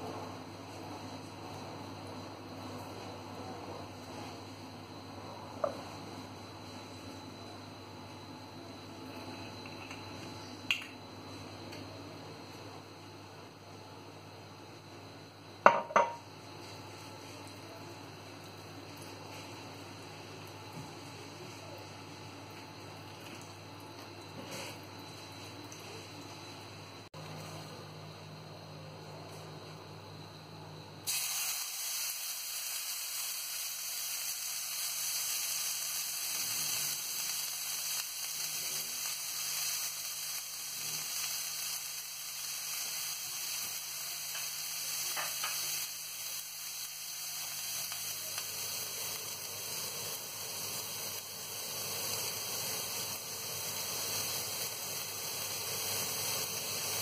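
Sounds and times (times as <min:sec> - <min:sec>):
meat sizzling in a grill pan: 0:31.1 - 0:57.0.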